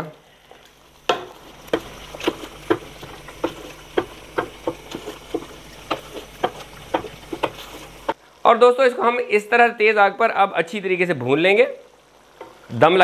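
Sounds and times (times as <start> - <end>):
faint steady hiss: 0.0 - 13.0
wooden spoon knocking on pot: 1.0 - 8.2.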